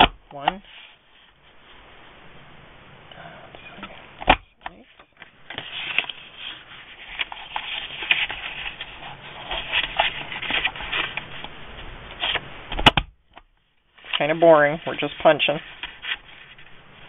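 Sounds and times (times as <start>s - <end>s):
paper rustling against plastic: 5.5s - 11.5s, 14.0s - 16.8s.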